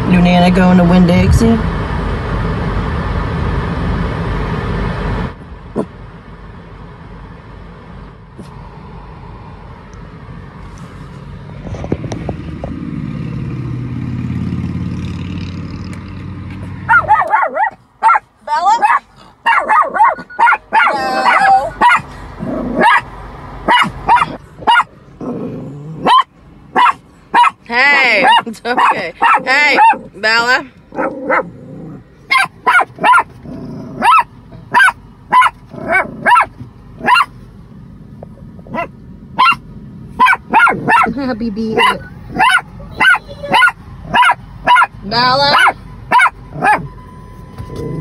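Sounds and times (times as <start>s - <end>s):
car cabin vehicle noise: 0.0s - 48.0s
small dog yipping: 16.9s - 22.0s, 22.8s - 23.0s, 23.7s - 24.9s, 26.0s - 27.6s, 32.3s - 33.3s, 34.0s - 37.3s, 38.7s - 39.6s, 40.2s - 41.1s, 41.8s - 44.9s, 45.5s - 46.9s
dog whining: 16.9s - 23.1s, 23.7s - 27.6s, 30.9s - 37.3s, 41.7s - 44.9s, 45.5s - 46.9s
short rising squeak: 46.5s - 48.0s.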